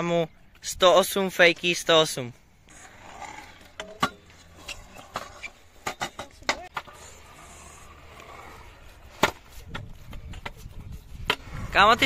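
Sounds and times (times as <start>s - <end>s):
scooter wheels rolling: 2.6s - 12.0s
scooter deck clacking on concrete: 3.8s - 6.9s.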